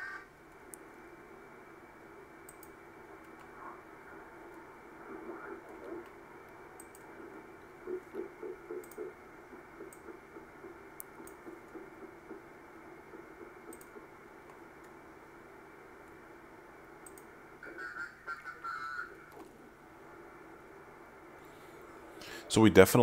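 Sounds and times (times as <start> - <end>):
radio hiss: 0.0 - 23.0
computer mouse clicks: 2.4 - 3.5, 5.6 - 9.2, 9.8 - 11.9, 13.6 - 15.0, 17.0 - 17.3.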